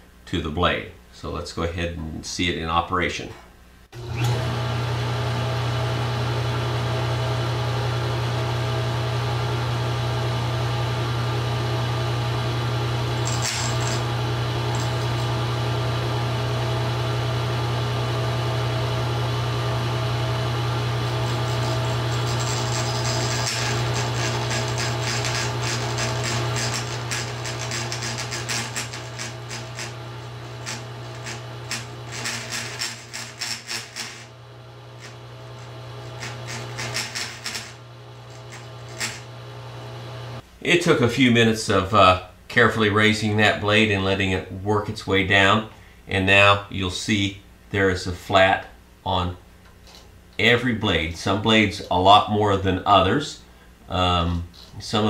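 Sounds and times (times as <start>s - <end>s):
table saw motor hum: 4.0s - 40.4s
stone grinding saw teeth: 13.2s - 15.4s, 21.1s - 34.3s, 35.0s - 39.2s.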